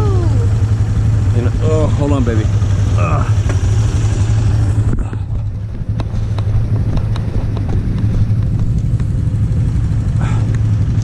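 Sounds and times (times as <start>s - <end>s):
atv engine idling: 0.0s - 11.0s
light handling clicks and knocks: 4.9s - 9.2s.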